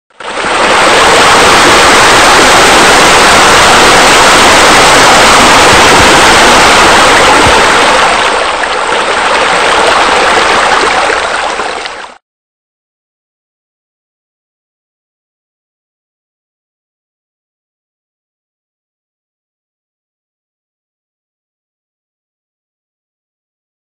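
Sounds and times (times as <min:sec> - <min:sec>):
falling splashing water: 0:00.1 - 0:12.2.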